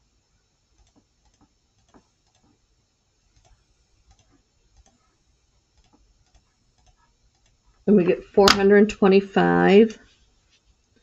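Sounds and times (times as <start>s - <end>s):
faint mouse clicks: 3.3s - 5.0s, 5.8s - 7.6s.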